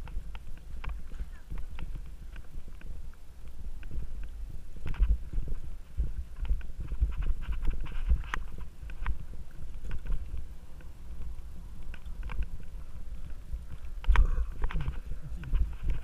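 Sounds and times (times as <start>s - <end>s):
bike clicks and rattles: 0.0s - 16.0s
bike tyres rumbling over dirt: 0.0s - 16.0s.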